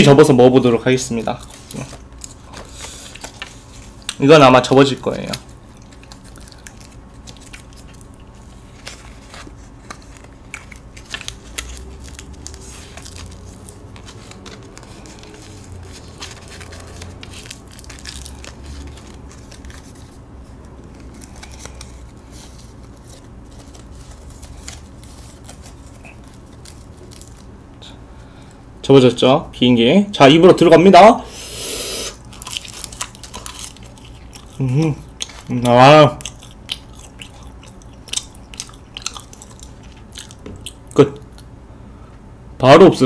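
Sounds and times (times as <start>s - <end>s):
paper crinkling as folded: 1.2s - 27.5s, 32.2s - 36.3s.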